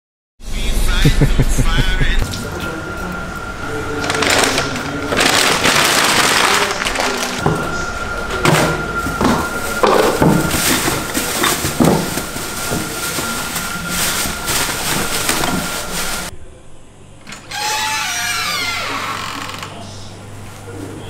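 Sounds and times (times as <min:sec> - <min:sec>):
paper bag crumpling: 0:03.9 - 0:07.5, 0:09.2 - 0:16.3
plastic bin liner rustling: 0:04.0 - 0:16.3.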